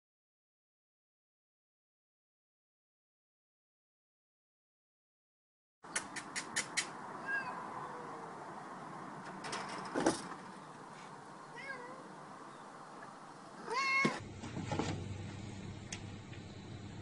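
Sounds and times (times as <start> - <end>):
cat meowing: 7.2 - 8.3, 11.5 - 12.2, 13.6 - 14.2.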